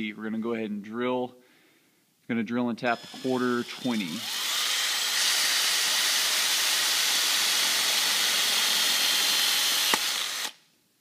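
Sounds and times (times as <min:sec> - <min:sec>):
cordless drill drilling into metal: 0:02.9 - 0:10.6.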